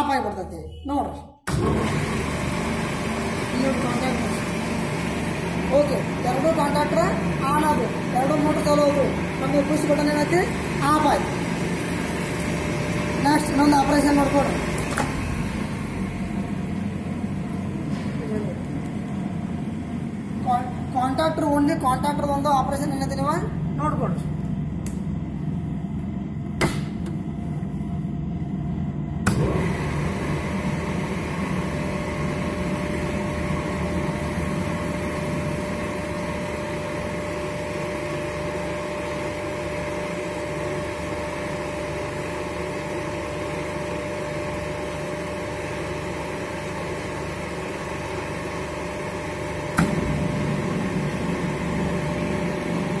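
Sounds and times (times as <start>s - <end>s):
electrical hum: 0.0s - 53.0s
mid-pitched whine: 48.0s - 53.0s.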